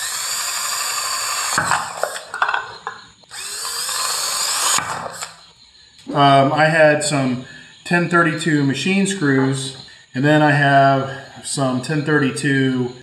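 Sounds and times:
cordless drill whine: 0.0 - 5.5
knocks and rattles: 1.5 - 3.1.

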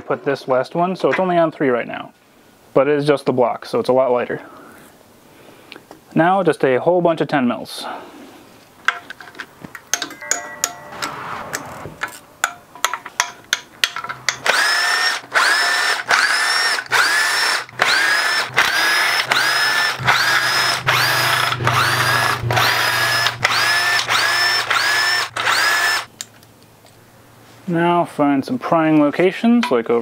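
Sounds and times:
ratchet clicking: 12.4 - 26.3
cordless driver whining: 14.3 - 26.3.

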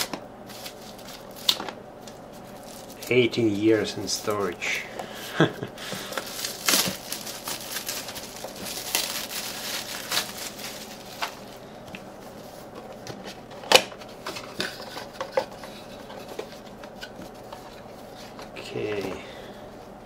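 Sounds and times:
plastic wrap crinkling: 0.0 - 4.6, 5.4 - 11.6.

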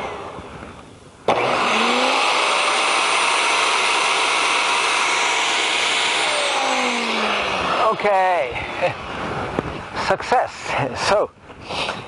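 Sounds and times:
garden shredder chewing branches: 1.3 - 9.0.

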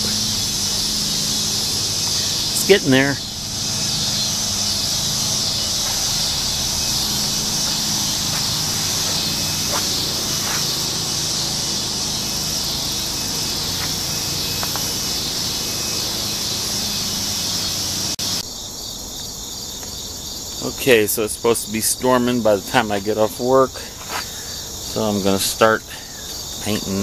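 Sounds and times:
crickets chirping: 0.0 - 27.0
high-pitched insect chorus: 0.0 - 27.0.

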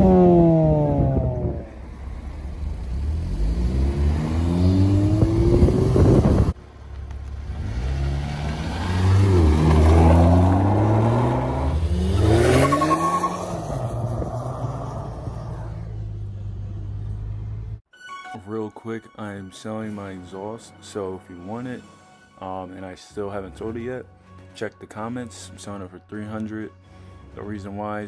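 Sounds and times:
car accelerating away: 0.0 - 17.8
car engine revving: 0.0 - 17.8.

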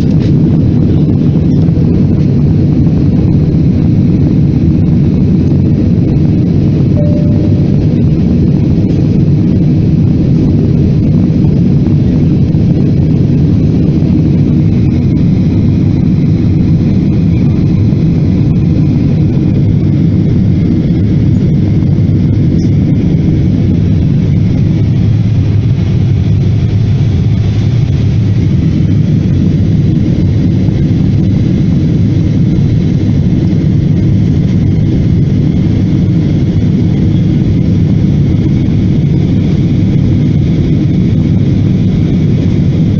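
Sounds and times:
engine and airflow rumble: 0.0 - 42.9
faint high whine: 6.7 - 9.0.

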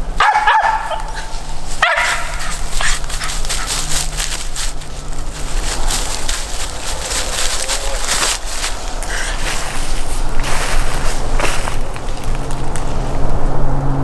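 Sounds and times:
dog barking: 0.2 - 4.0
footsteps crunching dry leaves: 0.4 - 13.2.

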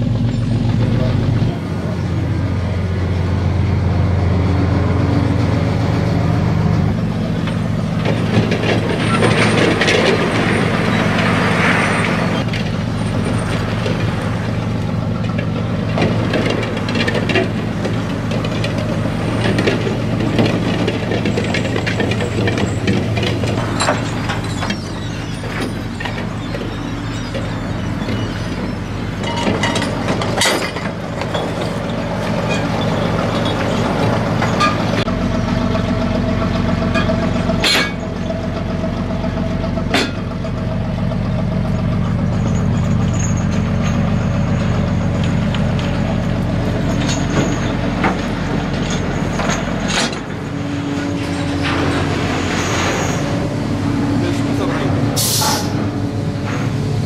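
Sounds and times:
engine and deck machinery droning: 0.0 - 57.0
sharp metal clanks: 37.0 - 38.2.

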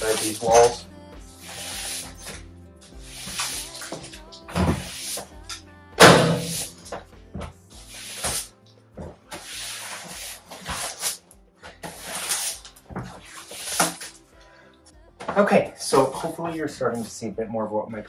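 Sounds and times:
broom sweeping sawdust: 0.0 - 0.7, 1.3 - 2.3, 3.0 - 3.9, 4.7 - 5.3, 7.8 - 8.5, 9.3 - 11.2, 11.8 - 14.1
quiet background music: 0.0 - 18.0.

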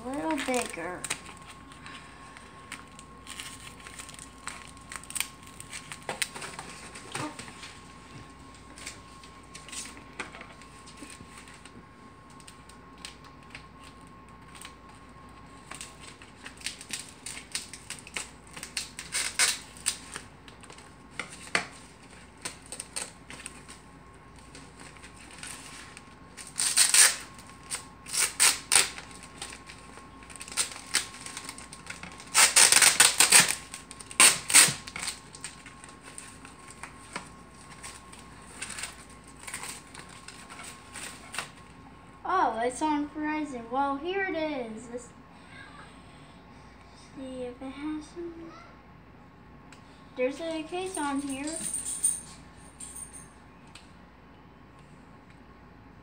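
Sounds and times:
packaging being unwrapped: 0.0 - 7.7, 10.6 - 41.7.

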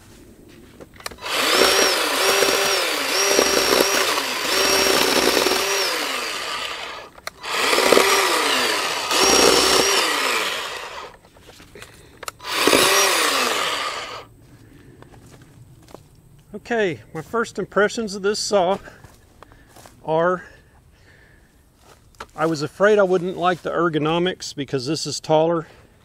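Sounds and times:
chainsaw cutting wood: 1.0 - 11.2, 12.2 - 14.3.

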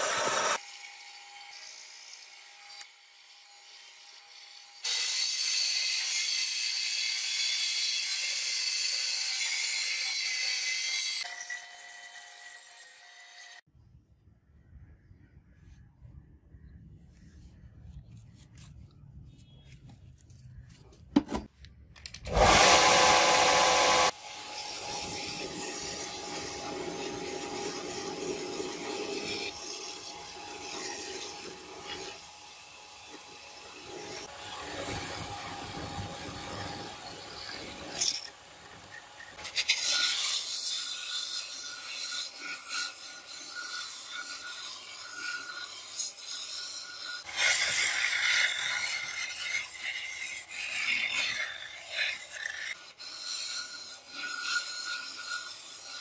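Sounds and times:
belt sander grinding wood: 22.3 - 56.0.

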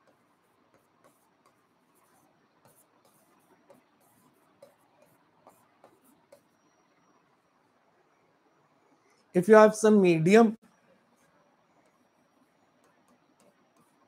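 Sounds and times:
pen tapping and scratching on whiteboard: 0.0 - 7.3, 11.0 - 14.0.

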